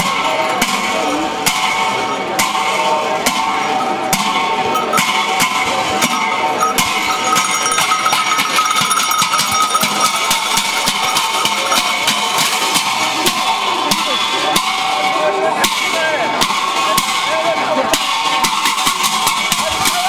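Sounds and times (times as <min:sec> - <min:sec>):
crowd chatter: 0:00.0 - 0:20.0
cymbals clashing: 0:00.1 - 0:17.3
drum strokes: 0:03.2 - 0:14.8.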